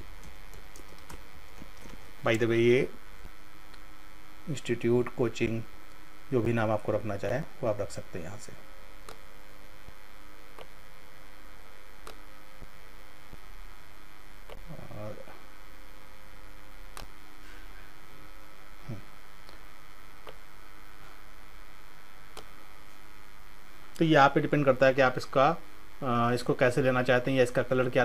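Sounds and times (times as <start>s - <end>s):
electrical mains hum: 0.0s - 28.0s
computer mouse clicks: 0.2s - 2.0s, 9.0s - 9.2s, 12.0s - 12.2s, 22.3s - 22.5s.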